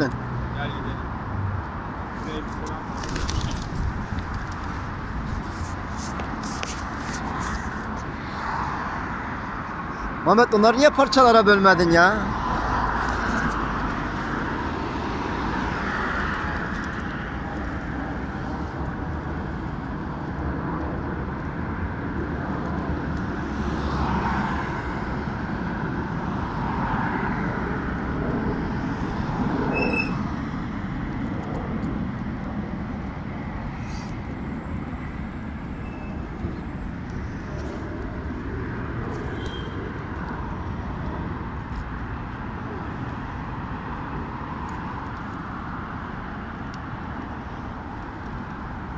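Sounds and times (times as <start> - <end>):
city road traffic rumble: 0.0 - 48.9.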